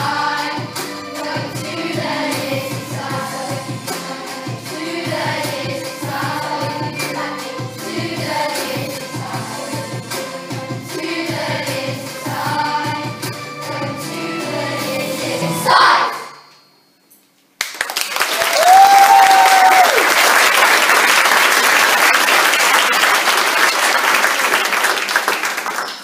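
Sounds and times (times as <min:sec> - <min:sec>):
song with singing: 0:00.0 - 0:16.5
audience applause and cheering: 0:17.6 - 0:26.0
long whoop: 0:18.4 - 0:20.1.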